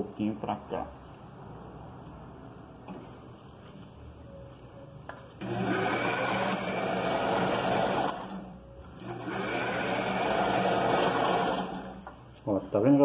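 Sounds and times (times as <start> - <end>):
electric motor humming: 5.4 - 12.1.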